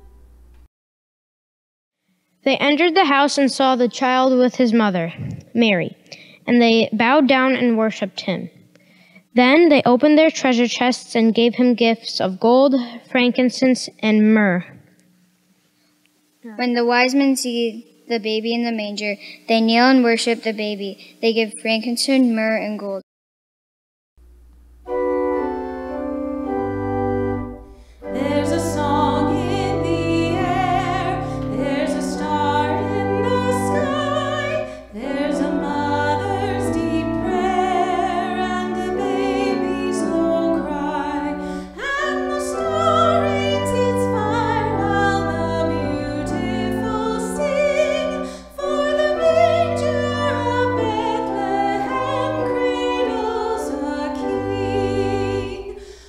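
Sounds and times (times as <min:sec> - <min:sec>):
organ chords: 0:00.0 - 0:00.7, 0:24.2 - 0:56.0
singer breathing: 0:06.0 - 0:06.5, 0:08.7 - 0:09.3, 0:27.6 - 0:28.1, 0:31.2 - 0:31.5, 0:41.4 - 0:41.8, 0:48.2 - 0:48.6, 0:55.7 - 0:56.0
woman singing with vibrato: 0:28.0 - 0:56.0.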